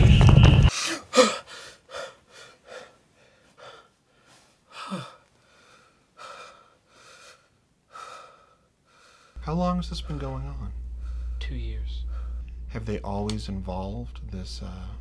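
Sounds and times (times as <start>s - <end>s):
man gasping: 0.7s - 9.4s, 12.0s - 12.6s
shaky breathing: 10.0s - 12.7s.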